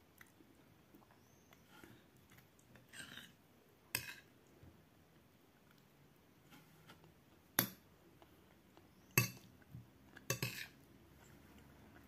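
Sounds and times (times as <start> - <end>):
metal spoon clinking on plate: 9.2 - 9.5, 10.3 - 10.8.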